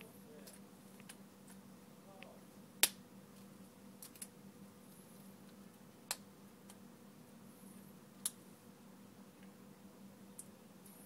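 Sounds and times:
faint steady hum: 0:00.0 - 0:11.0
sharp clicks of small parts: 0:04.0 - 0:04.3.

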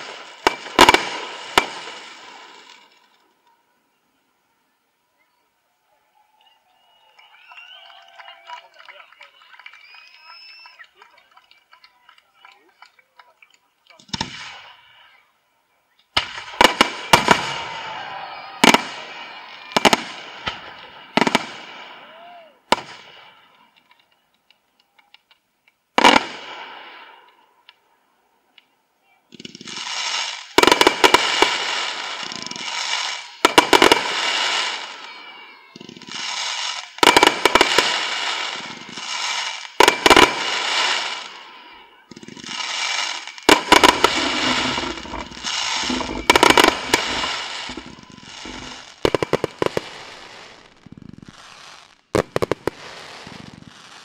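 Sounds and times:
firework shells bursting: 0:00.0 - 0:03.2, 0:29.3 - 0:35.0, 0:35.8 - 0:54.0
crackling hissing firework tails: 0:00.0 - 0:03.4, 0:13.9 - 0:15.4, 0:16.0 - 0:24.7, 0:25.8 - 0:27.6, 0:29.3 - 0:54.0.

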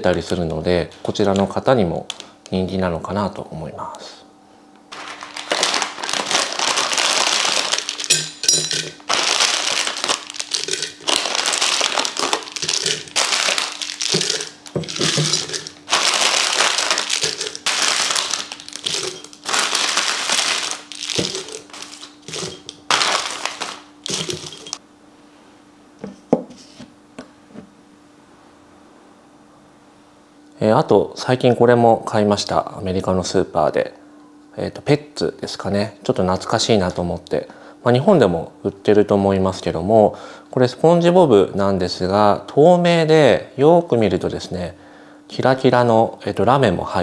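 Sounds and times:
candy wrappers crinkling: 0:01.2 - 0:02.6, 0:04.9 - 0:24.8.

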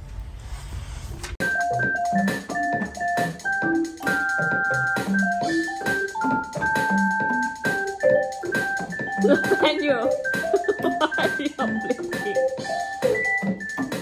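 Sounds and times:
electronic keyboard melody: 0:01.4 - 0:14.0
steady beat: 0:01.4 - 0:14.0.

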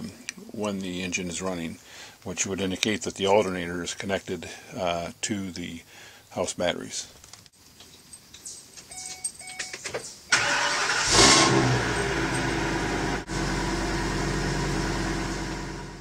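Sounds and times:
engine starter cranking: 0:10.3 - 0:13.1
engine revving and idling: 0:10.4 - 0:16.0.

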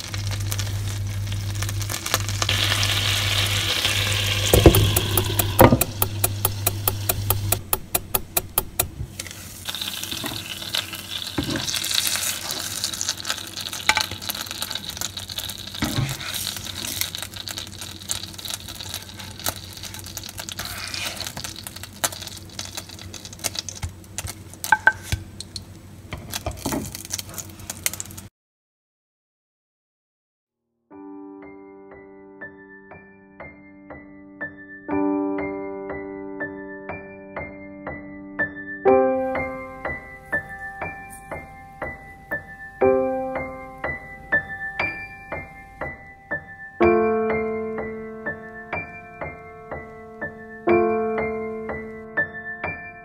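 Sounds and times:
batter sizzling in a frying pan: 0:00.0 - 0:28.3
low hum: 0:00.1 - 0:09.2
spatula scraping a pan: 0:15.8 - 0:17.1, 0:18.8 - 0:22.3.

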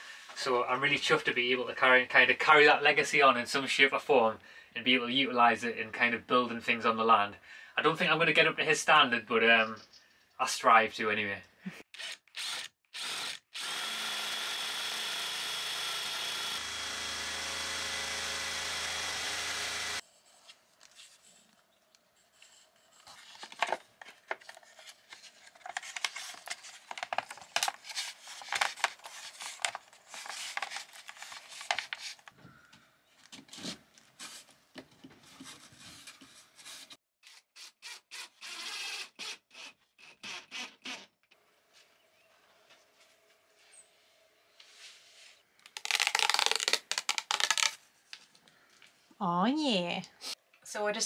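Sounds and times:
power drill cutting through wood: 0:11.9 - 0:20.0, 0:37.8 - 0:41.0.

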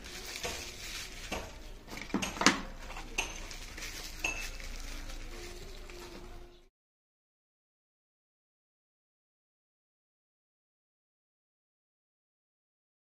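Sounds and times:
bubble-wrap pouch crinkling: 0:00.0 - 0:06.7.

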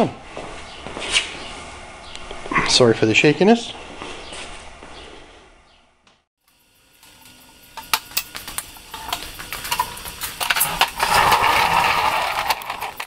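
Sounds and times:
mower wheels rumbling on concrete: 0:06.6 - 0:13.0.

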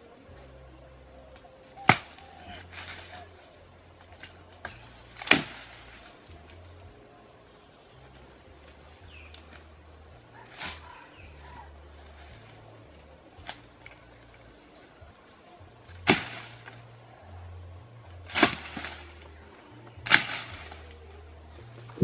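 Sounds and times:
hand tool whacking undergrowth: 0:01.8 - 0:03.4, 0:04.1 - 0:06.7, 0:10.4 - 0:11.2, 0:15.9 - 0:16.8, 0:18.3 - 0:19.3, 0:20.0 - 0:20.9.

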